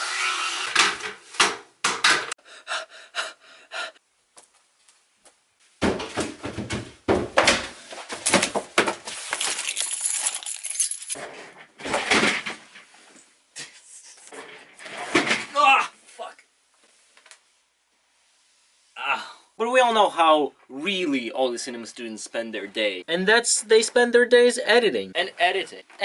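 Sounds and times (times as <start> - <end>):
clattering and rustling: 5.8 - 13.3, 14.3 - 15.5.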